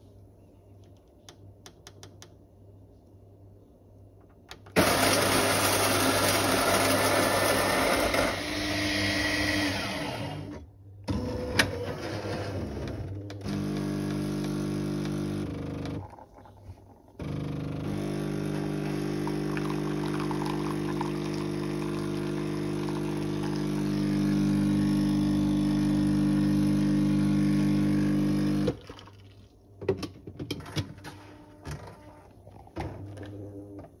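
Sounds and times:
coffee machine humming: 4.8s - 29.3s.

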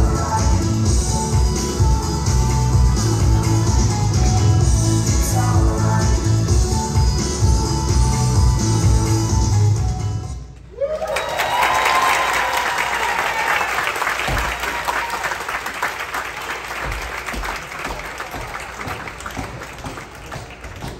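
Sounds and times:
recorded dance music: 0.0s - 10.4s
crowd cheering: 10.7s - 20.9s
audience applause: 10.8s - 20.9s.

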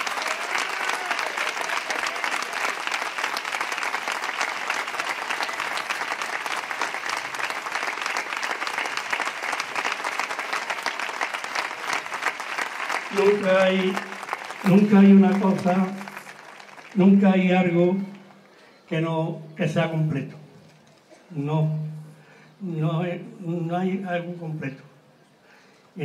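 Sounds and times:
crowd applauding: 0.0s - 18.7s.

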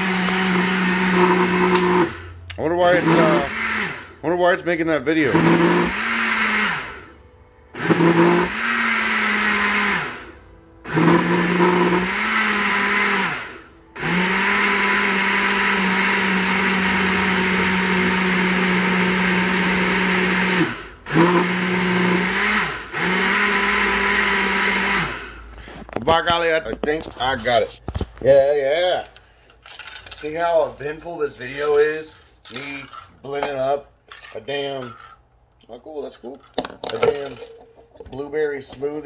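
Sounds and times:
blender motor blending: 0.0s - 4.2s, 5.2s - 25.5s.

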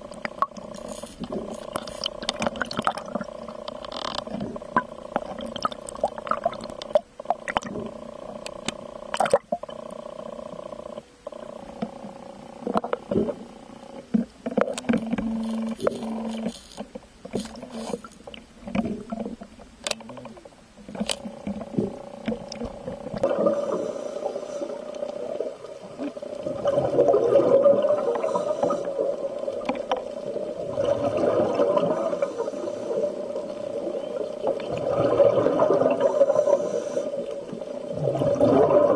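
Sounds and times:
rough underwater rushing noise: 21.4s - 33.8s, 34.5s - 37.1s, 37.9s - 38.9s.

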